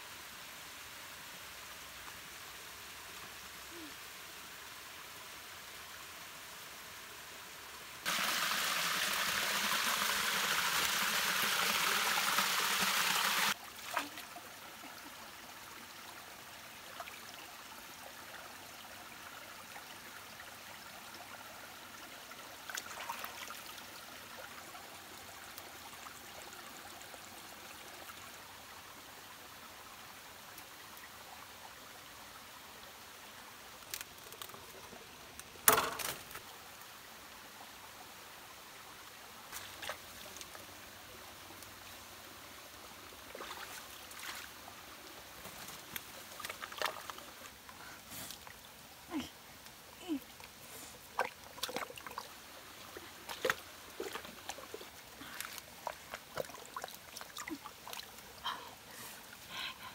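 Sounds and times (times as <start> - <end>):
stream running over rocks: 0.0 - 59.9
loud rush of water: 8.0 - 14.0
light water splashes: 39.4 - 40.9, 43.0 - 59.8.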